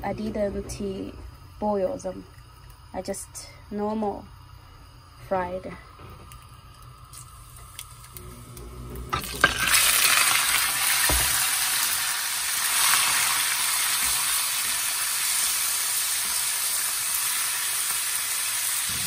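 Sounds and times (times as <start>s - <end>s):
meat sizzling in hot oil: 6.3s - 19.0s.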